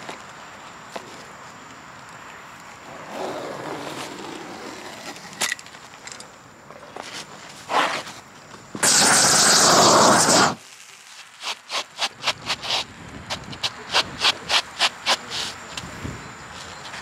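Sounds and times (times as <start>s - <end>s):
footsteps scuffing on gritty roofing: 6.8s - 8.9s
shoe scraping on roofing: 6.9s - 10.6s, 11.2s - 17.0s
loud rushing hiss: 8.8s - 16.2s.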